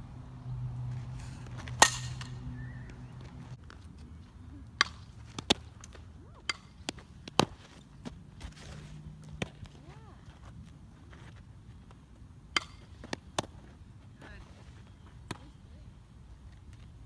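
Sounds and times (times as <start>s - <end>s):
bat cracking against ball: 1.6s - 2.4s.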